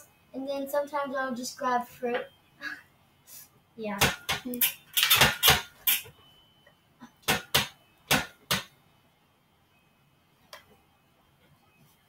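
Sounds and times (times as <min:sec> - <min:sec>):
gymnastics bar knocking and clicking: 0:04.0 - 0:06.1, 0:07.2 - 0:08.7.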